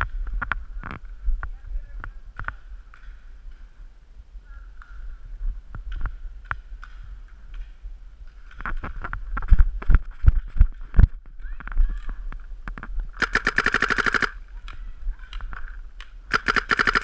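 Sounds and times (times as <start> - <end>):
wind rumble on microphone: 0.0 - 13.2
paintball markers firing: 13.2 - 15.4, 16.0 - 17.0.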